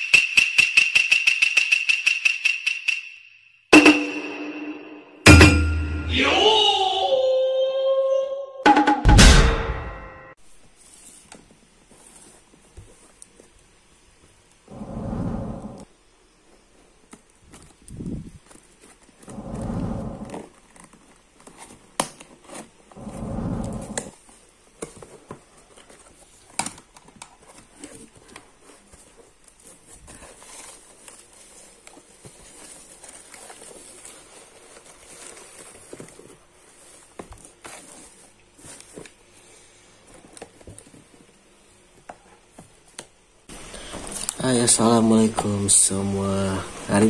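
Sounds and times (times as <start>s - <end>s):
paper filler crinkling: 23.7s - 41.1s.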